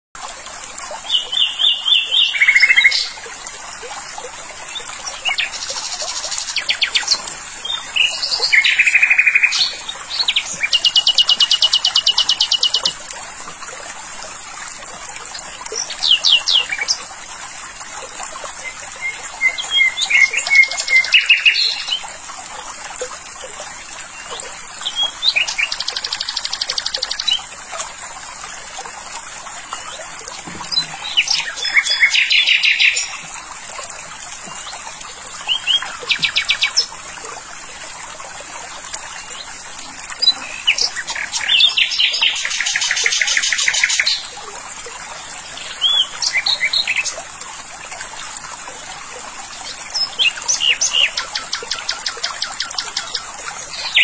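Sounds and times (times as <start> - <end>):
songbirds singing: 1.0 - 3.2, 4.7 - 13.0, 18.6 - 22.1, 24.1 - 27.5, 30.6 - 33.3, 40.2 - 44.4, 45.6 - 47.2, 49.6 - 54.0.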